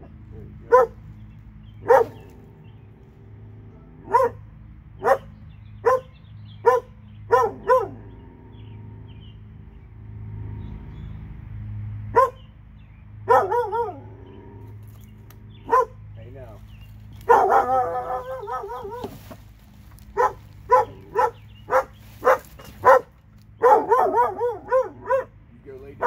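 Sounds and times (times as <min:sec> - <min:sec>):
dog barking: 0:00.6 - 0:01.0, 0:01.8 - 0:02.3, 0:03.8 - 0:08.1, 0:12.1 - 0:12.4, 0:13.3 - 0:14.1, 0:15.6 - 0:16.0, 0:17.2 - 0:19.2, 0:20.1 - 0:25.4.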